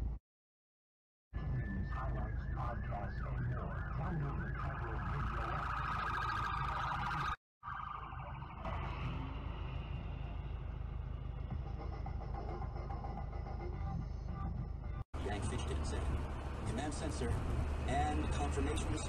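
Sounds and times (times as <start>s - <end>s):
traffic rumble: 1.6s - 19.0s
police siren wailing: 2.0s - 9.5s.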